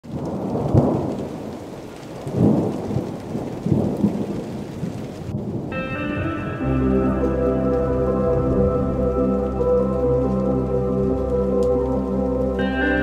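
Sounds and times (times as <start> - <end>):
heavy rain pouring: 0.0 - 13.0
low rolling thunder: 0.1 - 12.9
soft music with held notes: 5.7 - 13.0.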